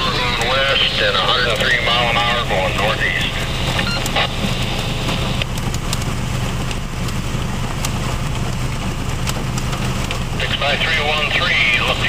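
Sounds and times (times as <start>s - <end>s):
engine idling: 0.0s - 12.0s
hail and rain pelting a vehicle roof: 0.0s - 12.0s.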